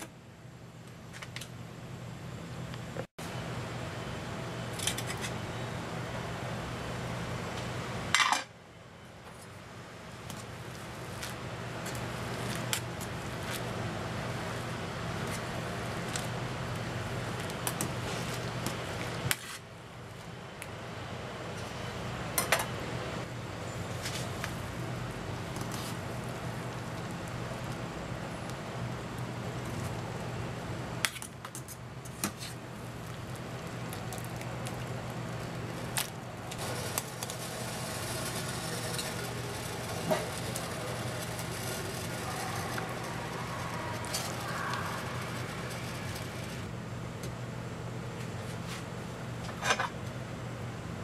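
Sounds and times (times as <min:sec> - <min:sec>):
gas burner hissing: 0:10.1 - 0:19.5, 0:22.3 - 0:31.1, 0:32.0 - 0:46.7
water boiling in metal pot: 0:23.3 - 0:46.7.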